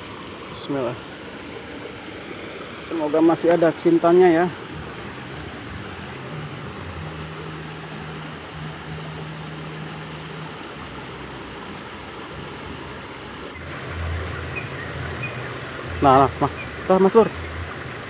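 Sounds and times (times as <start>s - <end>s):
low engine hum: 0.0s - 18.0s
stream water rushing: 0.0s - 18.0s
deeper hum: 4.5s - 11.6s.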